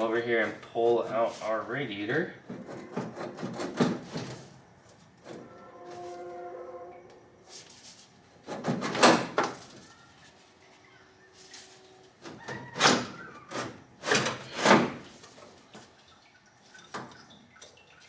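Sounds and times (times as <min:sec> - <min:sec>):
radiator scraping and rattling: 0:00.0 - 0:06.8, 0:07.4 - 0:10.5.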